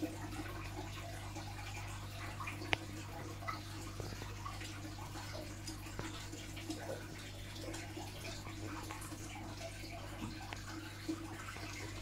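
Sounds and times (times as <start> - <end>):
water trickling and splashing: 0.0 - 12.0.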